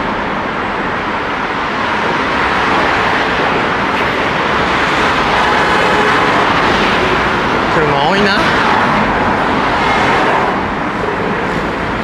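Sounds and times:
cars driving past: 0:00.0 - 0:12.0.

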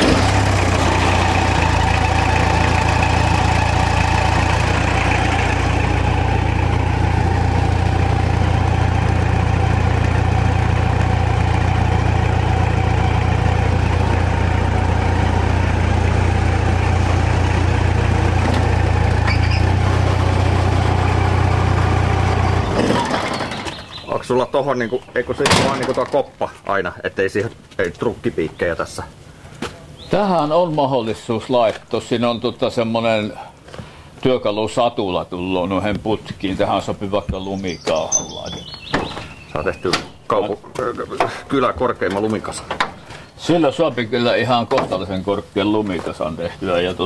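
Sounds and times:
engine idling: 0:00.0 - 0:24.3.

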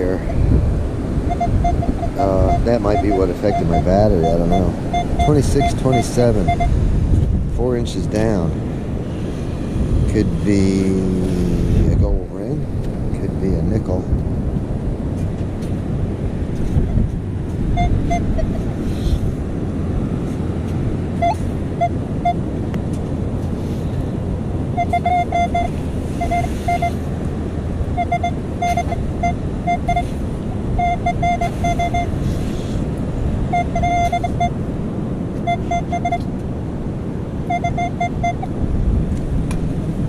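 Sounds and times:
wind: 0:00.0 - 0:40.0
metal detector short beeps: 0:01.3 - 0:06.8, 0:21.2 - 0:22.4, 0:24.8 - 0:27.0, 0:28.0 - 0:30.2, 0:30.8 - 0:32.2, 0:33.5 - 0:34.6, 0:35.4 - 0:36.3, 0:37.5 - 0:38.5.

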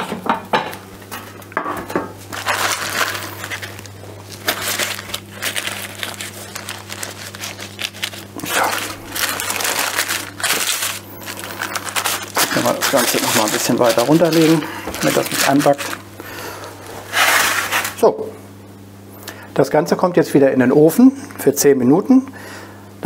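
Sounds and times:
steady low hum: 0:00.0 - 0:23.0
baking paper rustling and crinkling: 0:01.0 - 0:18.1.

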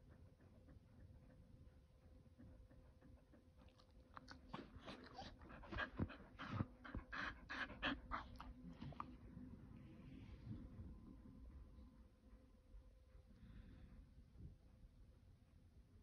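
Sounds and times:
dog panting: 0:00.0 - 0:09.6.

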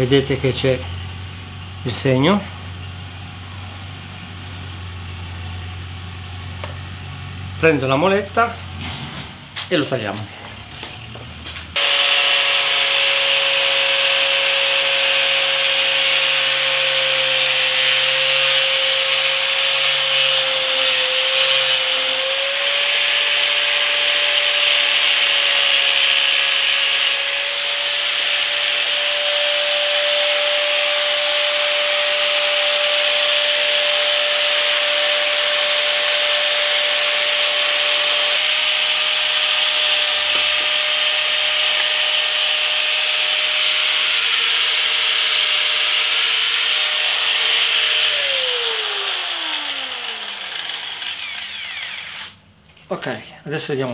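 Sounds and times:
angle grinder cutting plastic: 0:11.7 - 0:52.4.

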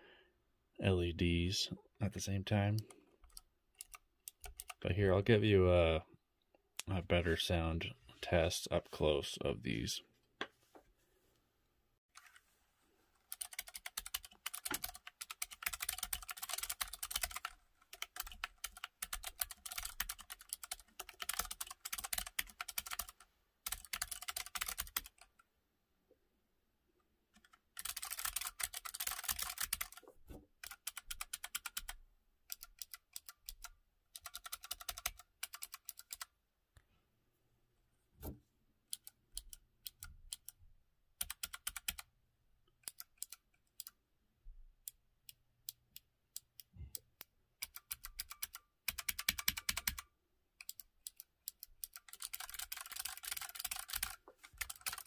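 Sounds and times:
clicky keyboard typing: 0:02.8 - 0:04.8, 0:13.3 - 0:25.3, 0:27.4 - 0:30.0, 0:30.6 - 0:36.3, 0:41.2 - 0:42.1, 0:42.8 - 0:44.0, 0:45.7 - 0:55.0.

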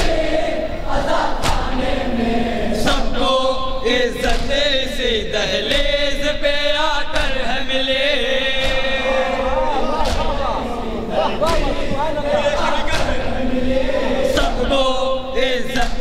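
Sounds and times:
men chanting a lament: 0:00.0 - 0:16.0
hands slapping chests: 0:01.4 - 0:01.8, 0:04.2 - 0:04.6, 0:10.0 - 0:10.5, 0:11.4 - 0:11.8, 0:12.9 - 0:13.2.

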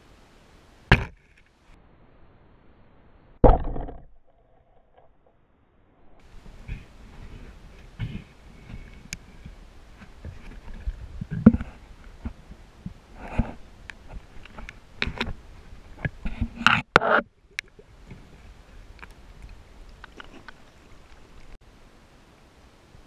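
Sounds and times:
underwater rustles: 0:06.2 - 0:21.6.

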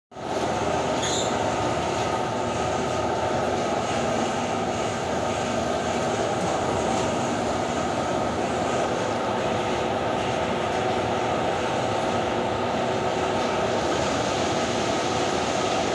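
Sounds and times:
laundry machinery hum and whir: 0:00.1 - 0:15.9
faint squeak: 0:01.0 - 0:01.4.

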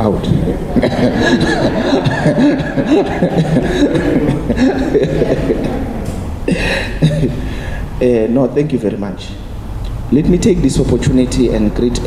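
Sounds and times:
people chuckling and laughing: 0:00.4 - 0:08.0
man laughing into a microphone: 0:00.7 - 0:07.5
cough-like burst: 0:00.8 - 0:07.5.

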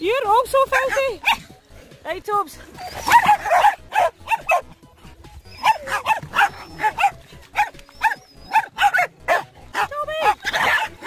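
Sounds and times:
dogs barking high: 0:00.7 - 0:01.5, 0:02.7 - 0:04.8, 0:05.5 - 0:11.0.

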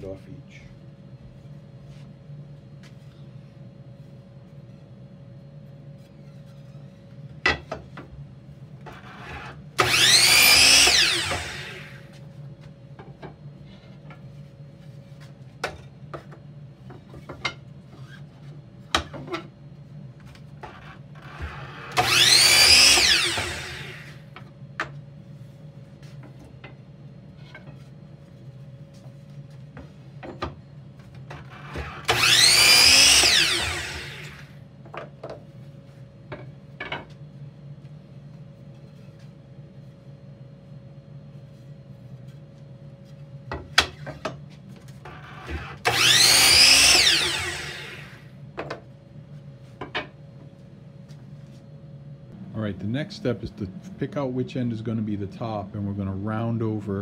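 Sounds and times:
miter saw cutting wood: 0:09.2 - 0:12.1, 0:21.3 - 0:24.2, 0:31.6 - 0:34.6, 0:45.4 - 0:48.3.

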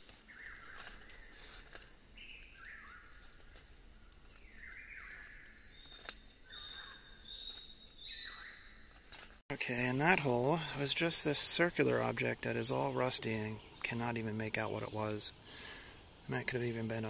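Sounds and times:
thin high whistled bird notes: 0:00.2 - 0:09.4.

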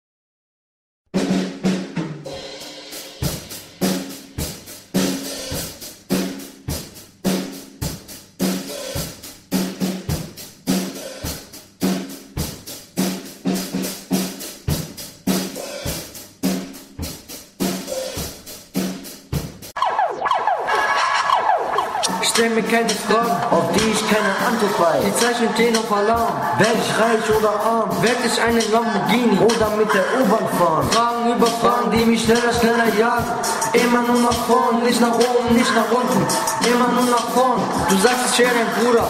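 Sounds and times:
hip-hop drum beat: 0:01.2 - 0:20.0, 0:20.8 - 0:39.0
repeating bass pattern: 0:19.8 - 0:39.0.

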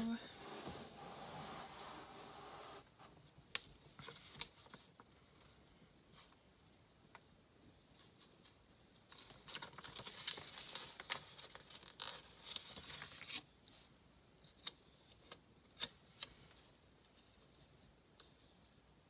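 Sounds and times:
paper sheet rustling: 0:08.0 - 0:13.5.

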